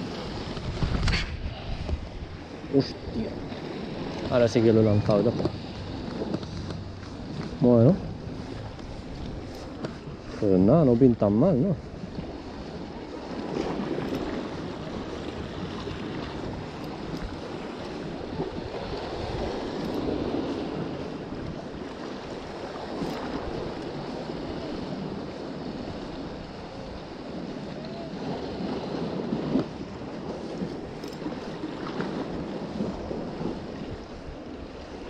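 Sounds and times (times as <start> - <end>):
sea waves washing on shore: 0.0 - 35.0
wind buffeting microphone: 0.0 - 35.0.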